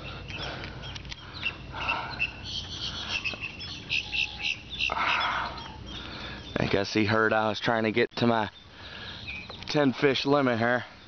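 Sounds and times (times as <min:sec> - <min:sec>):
high chirps: 0:00.3 - 0:06.7.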